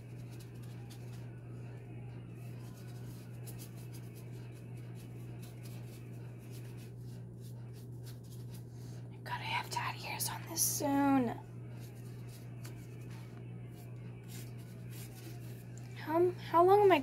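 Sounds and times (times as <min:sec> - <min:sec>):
steady low hum: 0:00.0 - 0:17.0
scratchy brush strokes: 0:02.5 - 0:08.9, 0:11.6 - 0:15.8.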